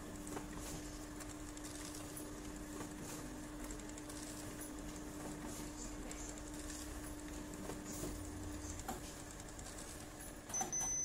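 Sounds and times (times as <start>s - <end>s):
faint paper feed ticks: 0.0s - 10.3s
copier humming: 0.0s - 11.0s.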